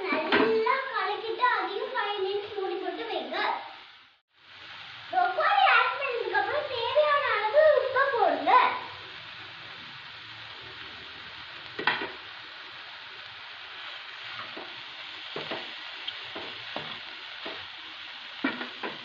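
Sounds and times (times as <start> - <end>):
vegetables sizzling in a pan: 0.0 - 19.0
spatula scraping and tapping pan: 18.4 - 19.0.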